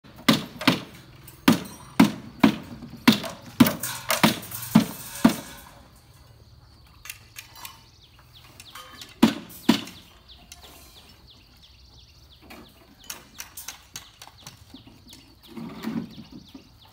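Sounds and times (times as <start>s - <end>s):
sharp ringing knocks: 0.3s - 5.7s.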